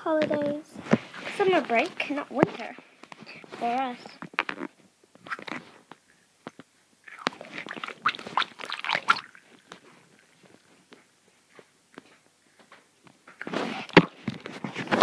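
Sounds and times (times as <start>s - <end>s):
rubber stress ball squelching: 0.9s - 12.1s.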